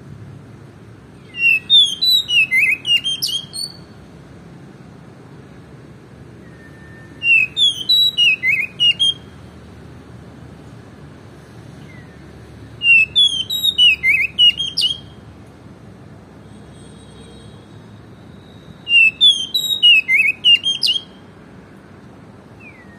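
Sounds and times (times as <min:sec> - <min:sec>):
bird singing whistled notes: 0:01.2 - 0:04.0, 0:06.3 - 0:09.5, 0:11.8 - 0:15.2, 0:18.3 - 0:21.3, 0:22.5 - 0:22.9.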